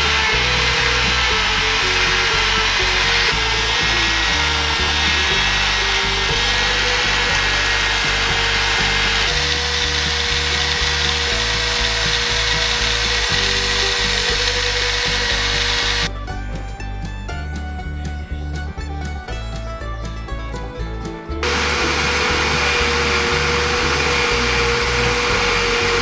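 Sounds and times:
rotary tool grinding metal: 0.0 - 16.1, 21.4 - 26.0
background music with bass line: 0.0 - 26.0.

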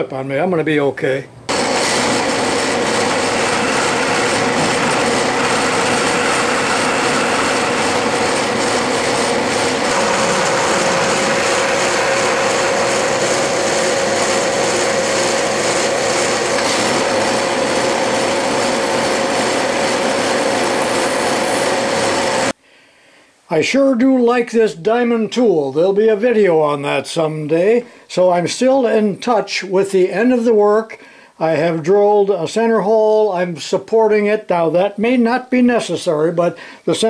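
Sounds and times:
metal lathe cutting with whine: 1.5 - 22.5.

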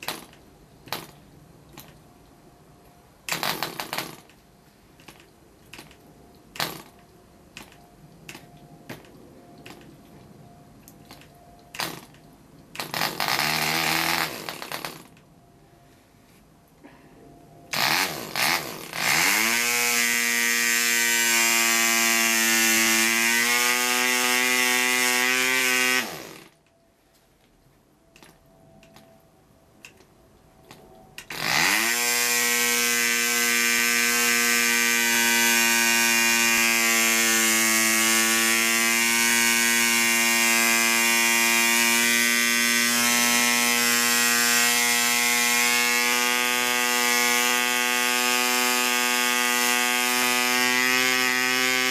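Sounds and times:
model aircraft engine buzzing: 31.3 - 51.9.

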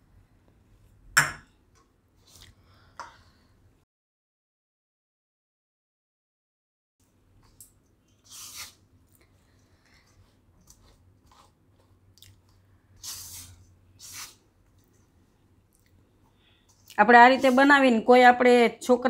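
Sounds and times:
spatula scraping powder in bowl: 13.0 - 14.4, 17.1 - 18.0.

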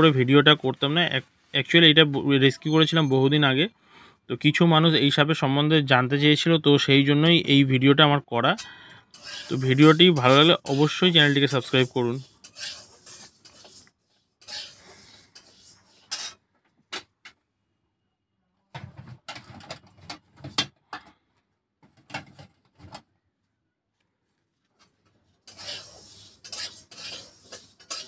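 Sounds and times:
rustling and scraping: 9.2 - 16.6, 24.2 - 28.0.

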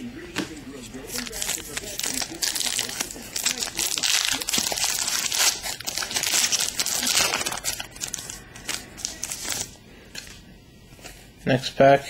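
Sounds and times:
foil wrapper crinkling and tearing: 1.1 - 9.8.

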